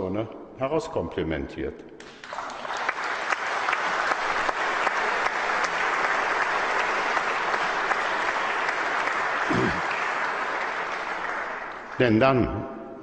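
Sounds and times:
audience applauding: 2.0s - 12.4s.

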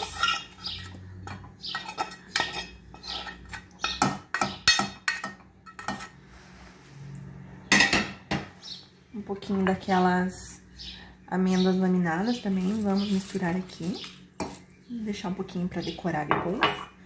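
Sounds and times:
utensil scraping metal pan: 0.0s - 6.6s.

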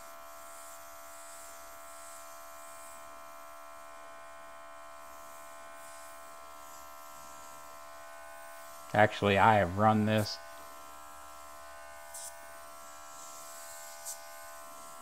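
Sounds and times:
airbrush compressor running: 5.0s - 15.0s.

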